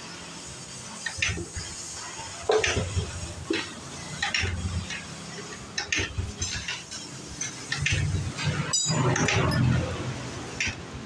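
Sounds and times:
metal engine parts clinking: 2.5 - 10.8.

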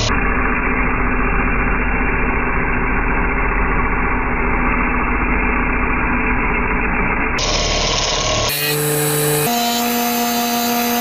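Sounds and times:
lathe spinning: 0.0 - 11.0
tool cutting resin on lathe: 2.6 - 11.0.

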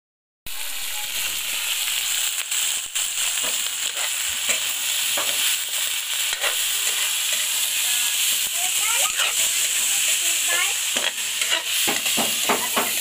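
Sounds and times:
meat sizzling in a wok: 0.5 - 13.0
metal spatula scraping a wok: 3.2 - 13.0.

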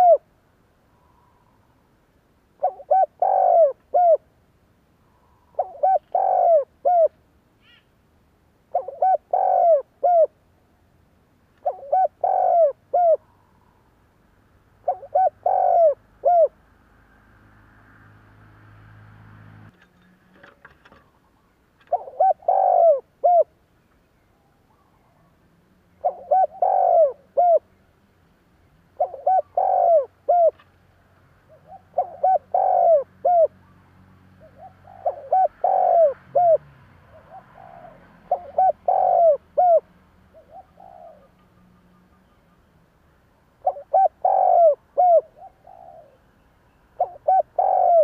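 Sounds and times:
dove cooing: 0.0 - 0.3, 2.6 - 4.3, 5.1 - 7.8, 8.7 - 10.4, 11.6 - 13.8, 14.8 - 16.6, 20.4 - 23.6, 26.0 - 27.8, 28.9 - 30.7, 31.4 - 33.8, 34.4 - 42.0, 43.6 - 46.3, 47.0 - 48.0.

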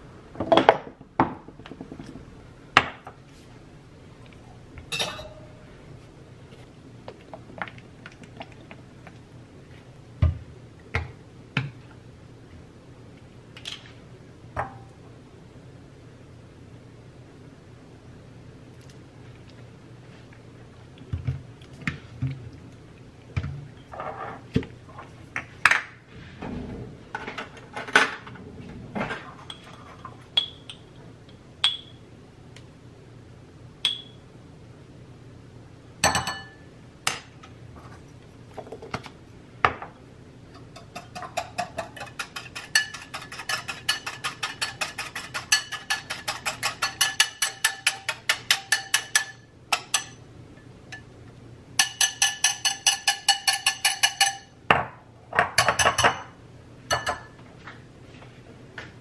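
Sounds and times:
spoon and jars clinking on glass: 4.9 - 5.4, 36.0 - 37.2, 51.8 - 54.5, 55.4 - 56.3, 56.9 - 57.3
whisk beating cream in glass bowl: 40.8 - 49.3.

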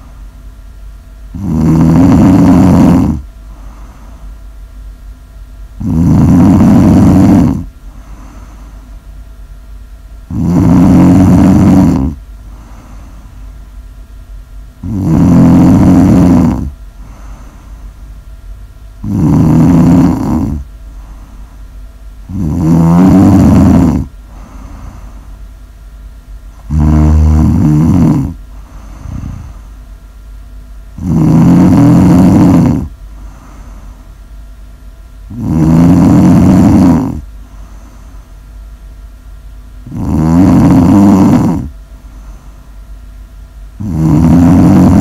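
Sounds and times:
person snoring: 1.3 - 4.2, 5.8 - 8.9, 10.3 - 13.3, 14.8 - 17.8, 19.0 - 21.6, 22.3 - 25.4, 26.6 - 29.8, 31.0 - 34.0, 35.3 - 38.2, 39.8 - 42.6, 43.8 - 45.0.

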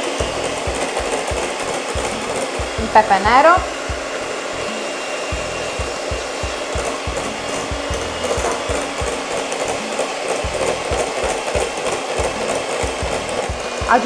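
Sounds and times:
electric hand mixer whisking: 0.0 - 14.0.

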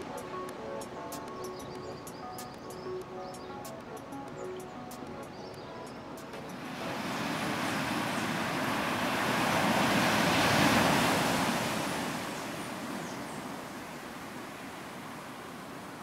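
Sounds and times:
ocean wave washing up beach: 6.4 - 16.0.

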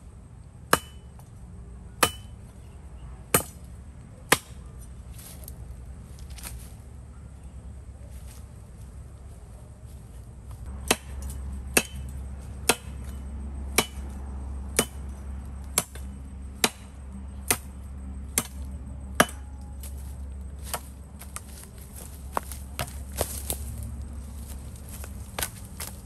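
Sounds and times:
axe chopping firewood: 0.7 - 1.2, 2.0 - 2.4, 3.3 - 3.7, 4.3 - 4.7, 10.6 - 20.0, 20.6 - 23.6, 24.9 - 26.0.

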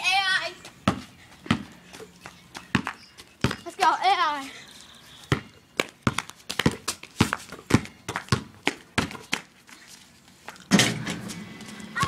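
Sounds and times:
scuffing on concrete: 5.2 - 11.8.

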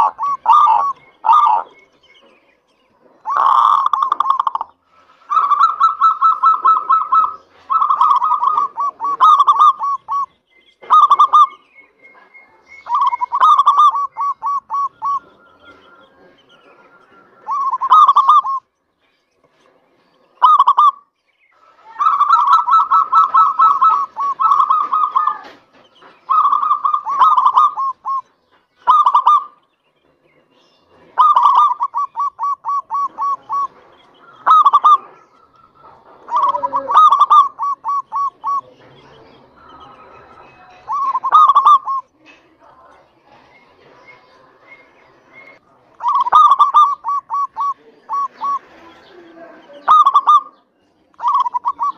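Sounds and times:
dove cooing: 0.0 - 2.4, 3.0 - 18.7, 20.4 - 21.0, 21.6 - 29.6, 30.9 - 42.9, 43.8 - 51.9.

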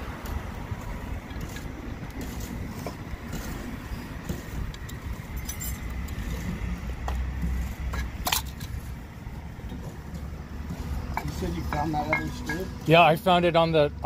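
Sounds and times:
street traffic rumble: 0.0 - 14.0
metal clicks and clinks: 4.2 - 6.5, 7.1 - 8.8.

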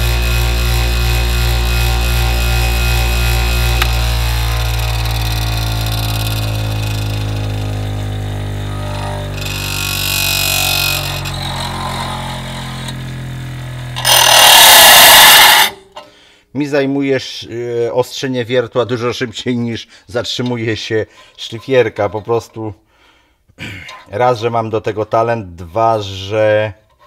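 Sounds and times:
metal grinding on stone: 0.0 - 13.1, 13.9 - 15.9
bench grinder motor humming: 0.0 - 15.8.

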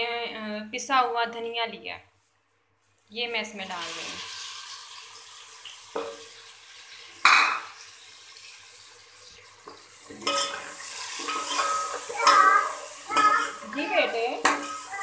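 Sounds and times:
food sizzling in oil: 3.4 - 15.0
metal spoon scraping a pot: 10.2 - 12.4, 13.2 - 15.0.

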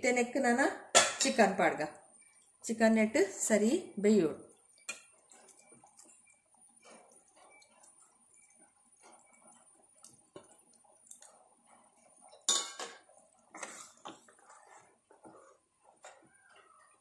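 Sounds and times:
spatula stirring in pot: 0.2 - 17.0
knocks and clinks against pot: 12.4 - 13.0.

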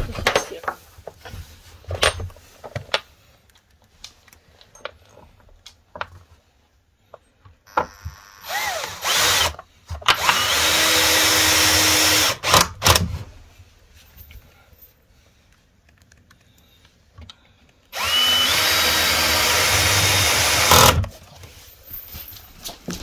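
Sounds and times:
cordless drill motor: 7.7 - 13.0, 17.9 - 21.1.

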